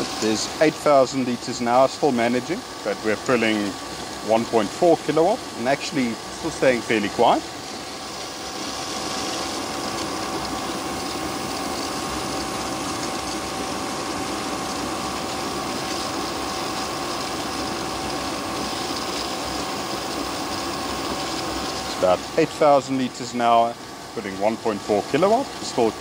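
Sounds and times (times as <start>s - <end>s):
pump whining: 0.0s - 26.0s.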